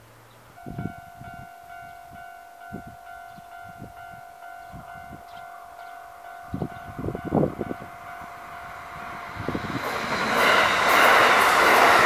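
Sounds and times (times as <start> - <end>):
level-crossing warning bell: 0.5 - 12.0.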